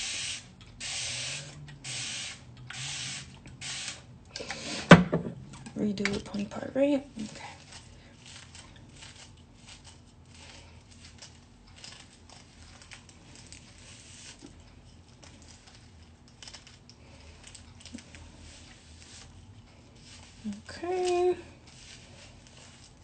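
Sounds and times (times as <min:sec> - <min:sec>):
hairbrush scratching through hair: 0:07.2 - 0:16.3, 0:18.0 - 0:23.0.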